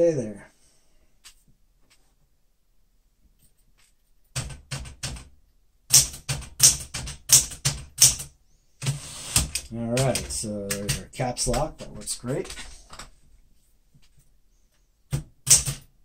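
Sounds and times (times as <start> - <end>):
typewriter keystrokes: 5.9 - 11.7, 15.4 - 15.9.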